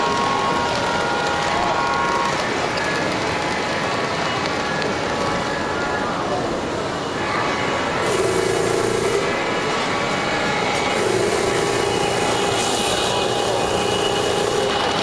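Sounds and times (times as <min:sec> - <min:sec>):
motors whirring: 0:07.9 - 0:15.0
model train wheels rolling: 0:08.0 - 0:15.0.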